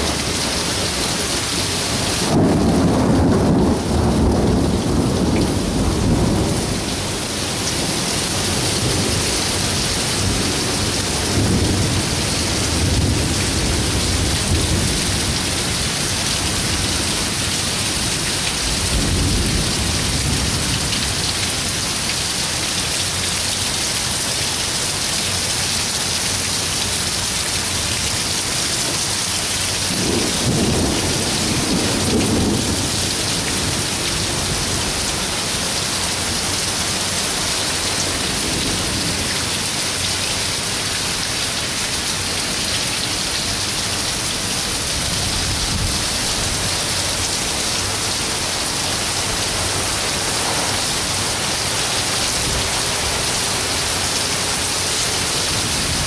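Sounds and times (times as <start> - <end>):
heavy rain pouring: 0.0 - 56.0
thunder rumbling: 2.0 - 21.2, 29.8 - 35.4.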